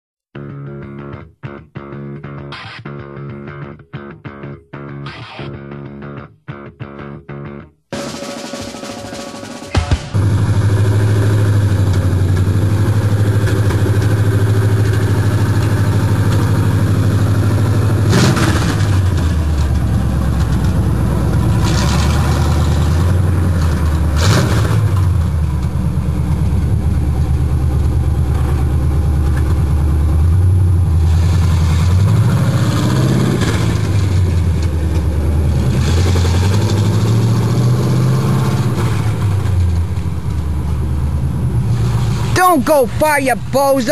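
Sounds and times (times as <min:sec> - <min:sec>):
loud deep engine exhaust rumble: 0:10.1 - 0:42.4.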